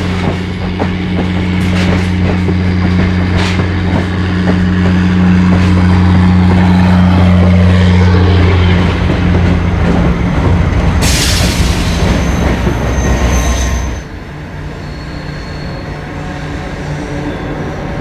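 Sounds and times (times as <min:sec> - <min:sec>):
diesel locomotive engine droning: 0:00.0 - 0:18.0
thin high squeal: 0:12.1 - 0:14.1, 0:14.8 - 0:16.0, 0:16.8 - 0:17.8.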